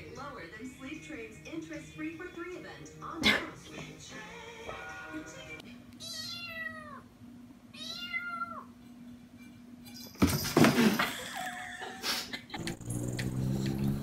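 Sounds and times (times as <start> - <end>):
kitten meowing: 6.0 - 7.0, 7.8 - 8.7.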